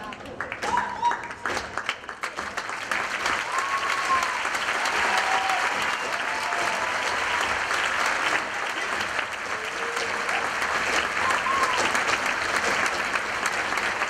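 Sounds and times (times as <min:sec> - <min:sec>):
audience applause: 0:00.0 - 0:14.0
crowd cheering: 0:02.9 - 0:14.0.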